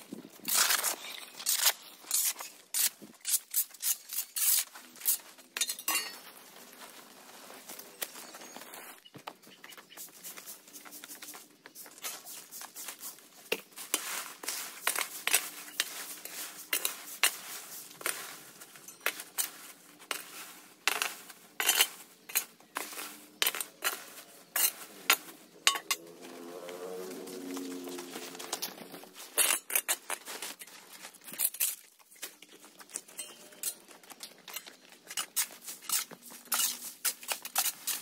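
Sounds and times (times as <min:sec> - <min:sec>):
hard objects clinking and clattering: 0:05.1 - 0:06.3, 0:20.9 - 0:26.0.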